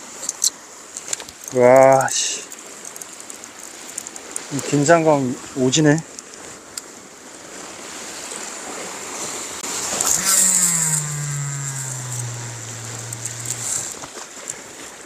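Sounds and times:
motorboat engine passing: 9.6s - 14.0s.

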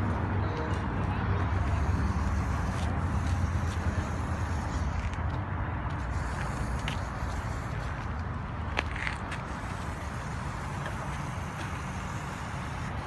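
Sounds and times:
toy car motors running: 1.4s - 13.0s.

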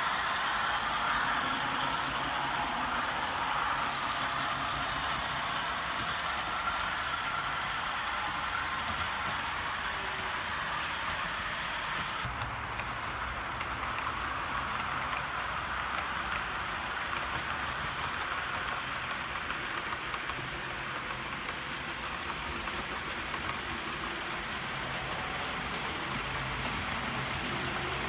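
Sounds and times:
model train wheels rushing on rails: 0.0s - 28.0s.

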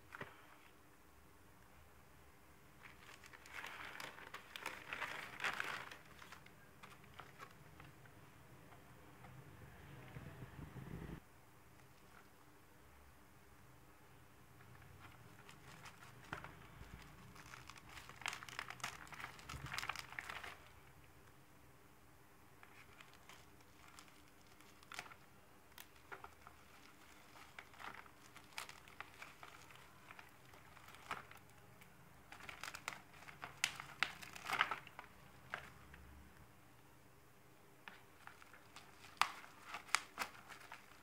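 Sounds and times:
bubble wrap crinkling: 2.7s - 8.2s, 14.6s - 21.0s, 22.6s - 36.1s, 37.8s - 41.0s.

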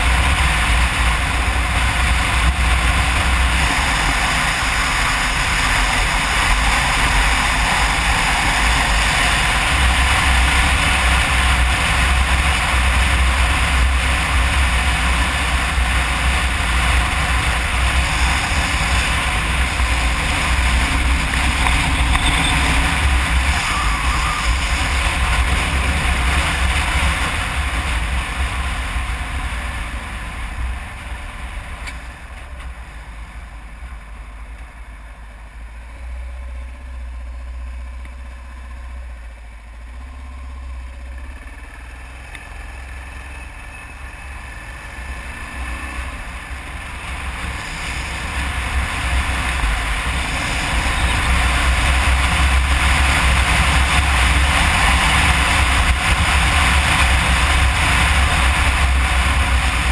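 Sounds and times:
wind rush: 0.0s - 31.7s, 45.5s - 59.9s
motorcycle engine: 0.0s - 59.9s.

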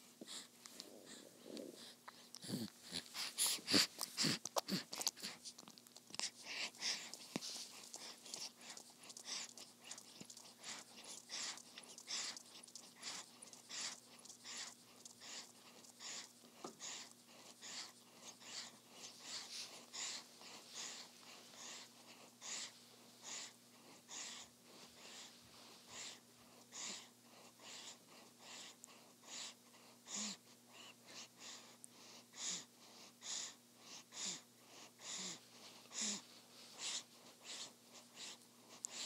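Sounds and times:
baby breathing softly: 0.0s - 39.0s
baby sucking on a pacifier: 0.2s - 22.7s.

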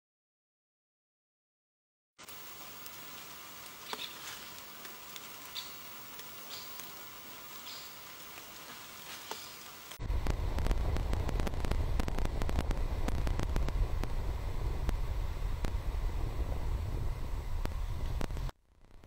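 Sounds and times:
quiet forest ambience: 2.2s - 10.4s
sharp clicks and crackles: 2.8s - 7.0s, 9.3s - 14.2s
wind rumble on microphone: 10.0s - 19.0s.

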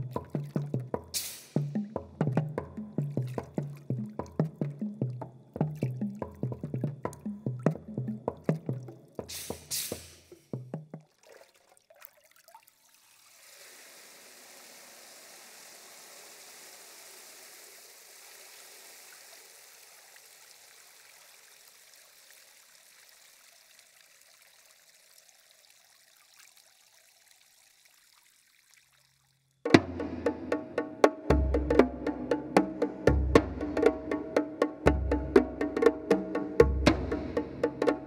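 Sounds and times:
water trickling from a bowl: 0.0s - 1.4s, 2.2s - 29.6s
water drips: 0.0s - 29.7s.

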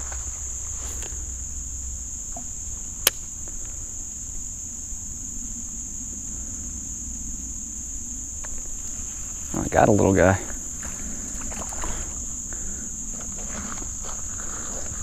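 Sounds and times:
insects chorus: 0.0s - 15.0s
sharp click: 3.0s - 3.3s.

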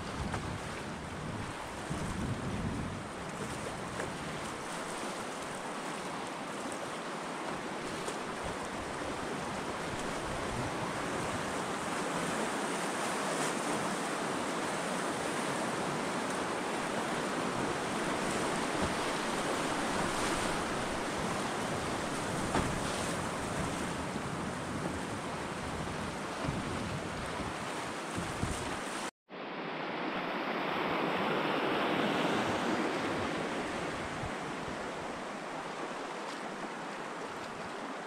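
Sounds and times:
rushing whitewater: 4.2s - 24.3s, 27.1s - 38.0s.

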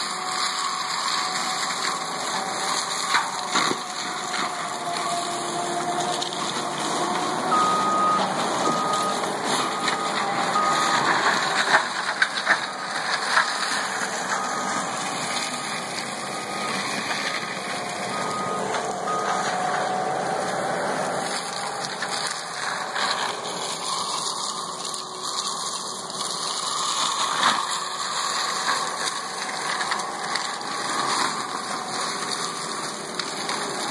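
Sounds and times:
wood cracking: 0.0s - 19.3s, 21.2s - 33.9s
loader engine under load: 0.0s - 33.9s
mulcher rotor shredding brush: 0.0s - 33.9s
backup alarm beeping: 7.4s - 11.6s, 14.2s - 16.9s, 18.1s - 20.1s.

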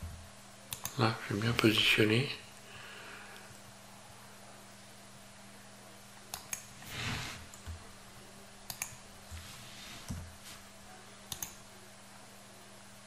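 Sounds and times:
low electrical hum: 0.0s - 13.0s
mouse and keyboard clicks: 6.3s - 6.7s, 8.7s - 9.0s, 11.3s - 11.6s
soft rustle: 9.3s - 10.8s.

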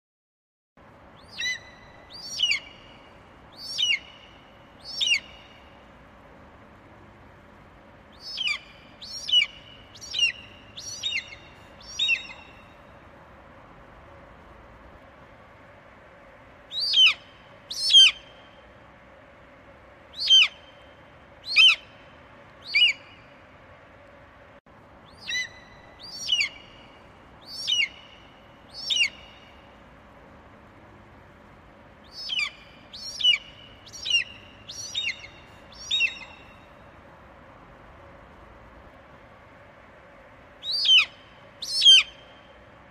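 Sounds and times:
faint steady hum: 0.8s - 42.9s
budgerigars chirping: 1.3s - 2.7s, 3.6s - 4.1s, 4.9s - 5.4s, 8.2s - 12.6s, 25.1s - 26.6s, 27.5s - 28.0s, 28.8s - 29.3s, 32.1s - 36.6s, 40.6s - 42.1s.

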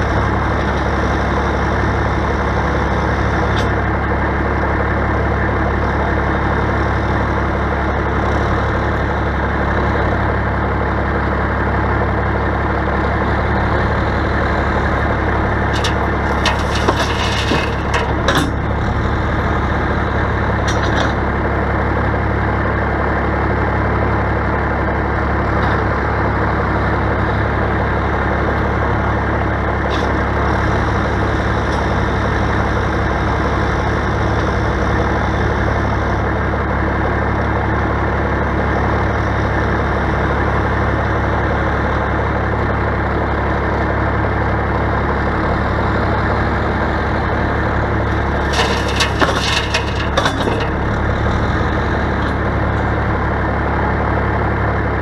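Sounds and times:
backhoe engine running: 0.0s - 55.0s
diesel truck idling: 0.0s - 55.0s
gravel landing in steel dump bed: 15.1s - 18.9s, 47.9s - 52.5s.

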